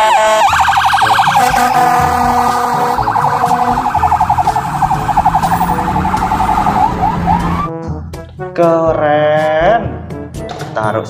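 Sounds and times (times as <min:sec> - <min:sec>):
ambulance siren warbling: 0:00.0 - 0:07.7.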